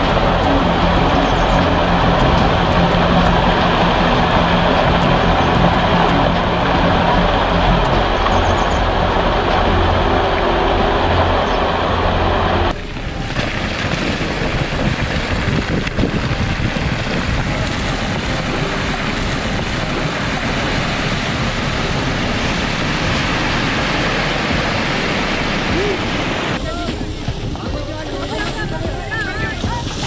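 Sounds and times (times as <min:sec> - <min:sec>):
rockfall rumble: 0:00.0 - 0:30.0
falling rocks knocking: 0:12.8 - 0:21.9.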